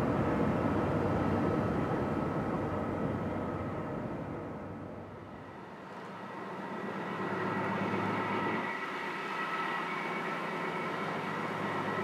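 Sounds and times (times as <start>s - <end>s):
tug diesel engines droning: 0.0s - 12.0s.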